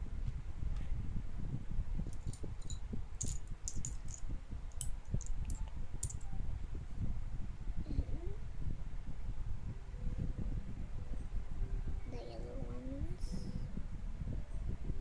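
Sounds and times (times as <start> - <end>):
steady low rumble: 0.0 - 15.0
plastic bricks clicking and clattering: 2.1 - 6.2.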